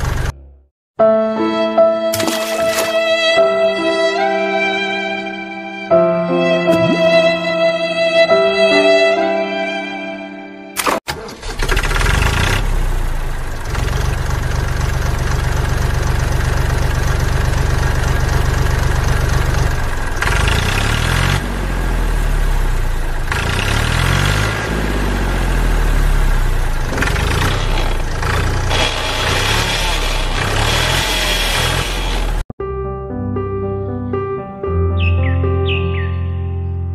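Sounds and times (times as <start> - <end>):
tractor engine revving: 0.0 - 0.6, 10.8 - 32.5.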